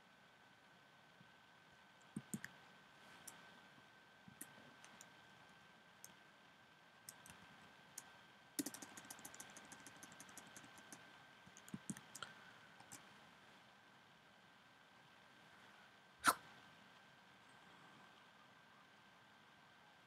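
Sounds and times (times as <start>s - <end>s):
faint high whine: 0.0s - 20.0s
keyboard typing: 2.1s - 2.5s, 7.1s - 7.4s, 8.0s - 13.1s.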